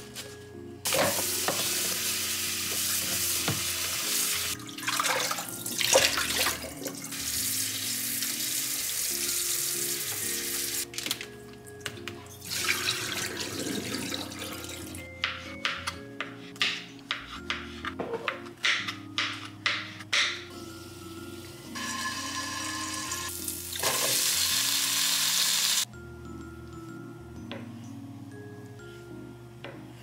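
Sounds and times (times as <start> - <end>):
soft background music: 0.0 - 30.0
tap water running into colander: 0.9 - 10.2, 12.4 - 14.9, 21.8 - 25.8.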